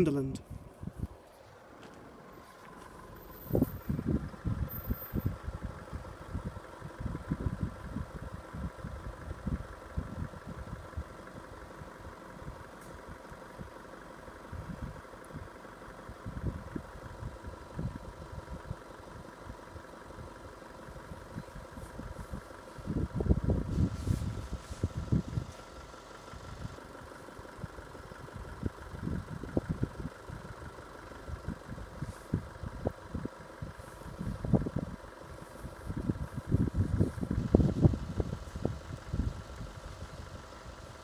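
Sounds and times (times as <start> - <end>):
wind buffeting microphone: 3.4 - 11.0, 21.6 - 25.5, 31.4 - 40.4.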